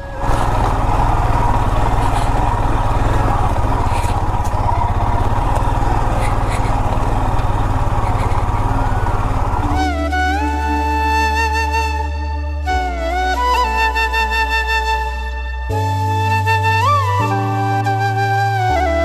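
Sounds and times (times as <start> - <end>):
motorcycle engine running: 0.0 - 10.6.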